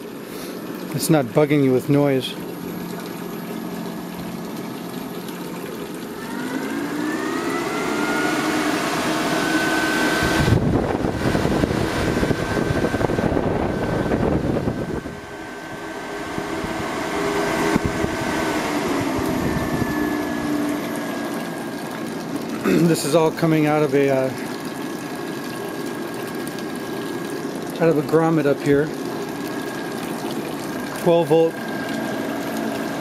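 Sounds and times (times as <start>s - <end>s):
fan motor whine: 0.0s - 33.0s
rushing air from fan: 6.2s - 21.7s.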